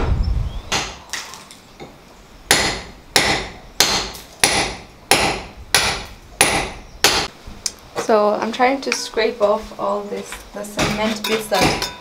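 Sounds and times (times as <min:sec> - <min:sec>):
hammer striking chisel: 0:02.5 - 0:07.3, 0:10.8 - 0:12.0.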